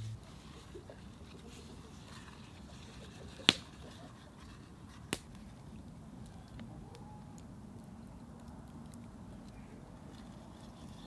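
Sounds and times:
steady low background noise: 0.0 - 11.0.

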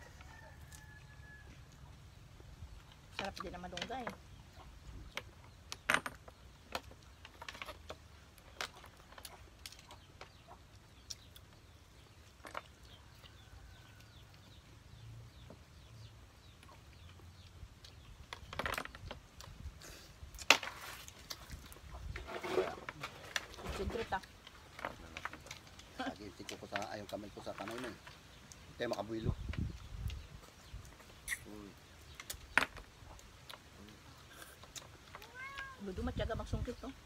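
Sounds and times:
faint bird chirps: 26.8 - 37.0.

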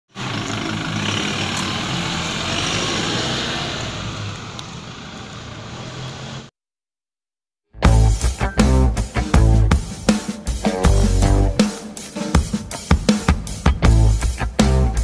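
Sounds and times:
car engine pulling away: 0.1 - 6.5.

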